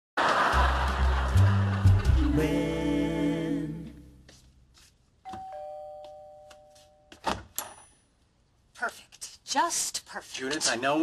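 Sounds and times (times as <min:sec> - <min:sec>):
two-tone doorbell ding-dong: 0:05.3 - 0:07.2.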